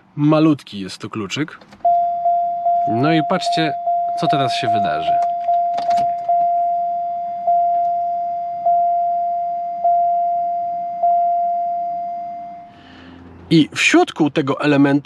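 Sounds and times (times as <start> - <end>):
car warning chime: 1.8 - 12.8.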